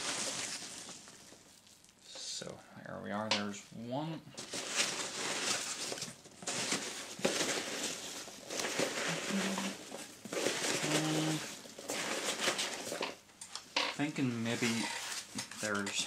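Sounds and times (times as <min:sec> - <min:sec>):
packaging crinkling: 0:00.0 - 0:02.0, 0:04.4 - 0:13.2.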